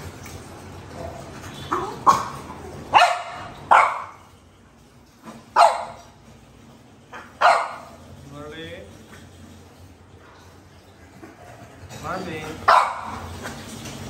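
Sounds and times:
dog barking: 0:01.7 - 0:04.3, 0:05.6 - 0:06.0, 0:07.2 - 0:08.0, 0:12.6 - 0:13.3.

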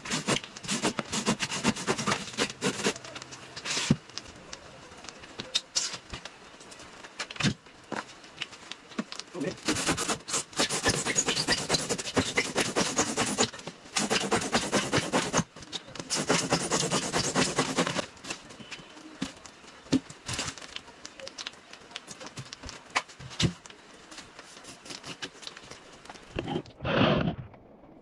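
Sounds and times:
hand saw rasping through foam: 0:00.0 - 0:03.0, 0:09.6 - 0:15.5, 0:16.1 - 0:18.0
faint clicks and rustles: 0:00.0 - 0:14.1, 0:14.8 - 0:28.0.

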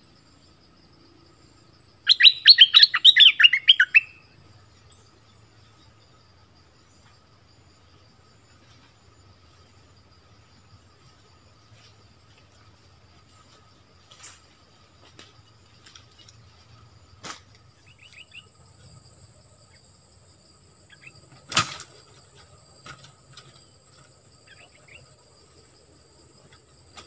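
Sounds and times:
bird chirping: 0:01.7 - 0:06.1, 0:17.7 - 0:20.0, 0:20.7 - 0:21.4, 0:23.4 - 0:25.2.

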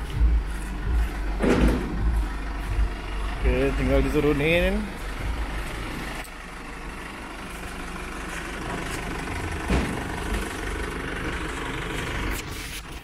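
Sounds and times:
truck engine running: 0:00.0 - 0:13.0
metal clunk: 0:01.4 - 0:02.2, 0:09.6 - 0:10.1.

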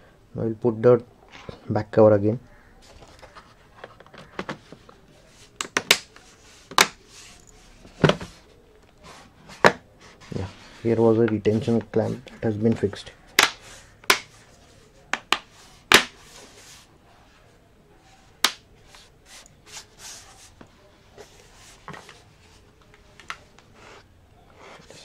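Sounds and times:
taps and handling noise: 0:02.8 - 0:09.8, 0:11.2 - 0:14.4, 0:15.1 - 0:16.5, 0:20.6 - 0:24.1.

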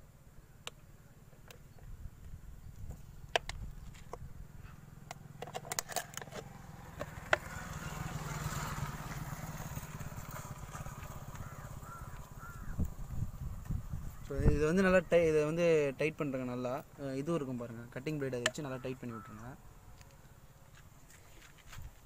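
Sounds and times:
steady low rumble: 0:09.8 - 0:15.2.

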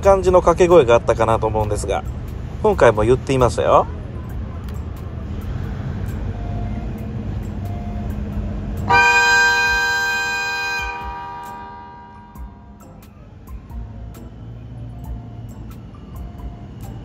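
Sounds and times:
locomotive engine rumble: 0:00.0 - 0:17.0
train horn blast: 0:08.8 - 0:12.8.

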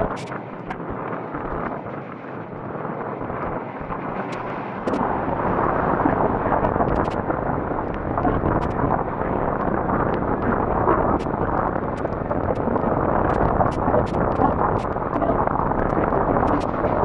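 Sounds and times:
wind rushing over microphone: 0:00.0 - 0:17.0.

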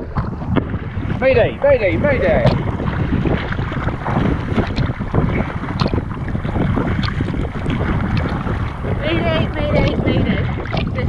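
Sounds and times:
water slapping a kayak hull: 0:00.0 - 0:11.0
wind on microphone: 0:00.0 - 0:11.0.

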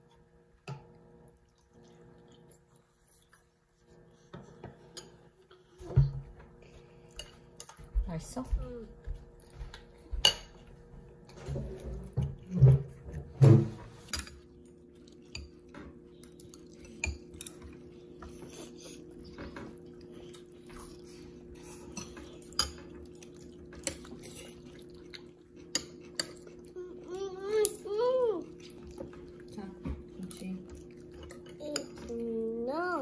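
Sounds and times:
cutlery clinking against bowl: 0:10.2 - 0:10.7, 0:11.3 - 0:14.5, 0:15.2 - 0:18.0, 0:21.9 - 0:24.5, 0:25.5 - 0:26.6.

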